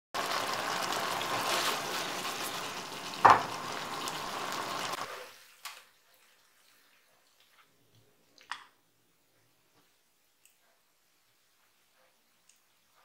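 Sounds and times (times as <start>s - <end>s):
food sizzling in frying pan: 0.2s - 5.7s.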